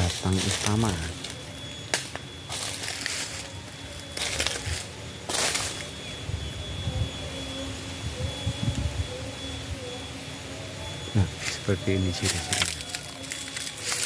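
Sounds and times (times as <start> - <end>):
footsteps crunching dry leaves: 0.0 - 6.2, 11.2 - 14.0.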